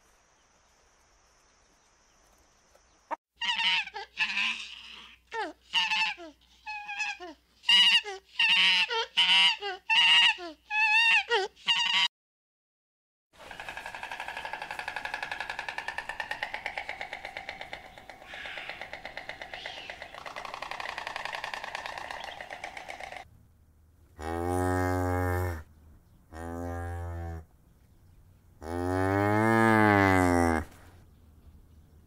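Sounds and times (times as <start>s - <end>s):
cattle mooing: 28.6s - 30.7s.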